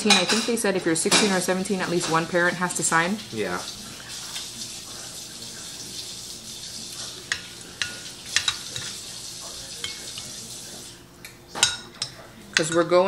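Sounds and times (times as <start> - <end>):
cutlery clinking on ceramic bowl: 7.2 - 9.0, 9.7 - 10.4, 11.5 - 13.0.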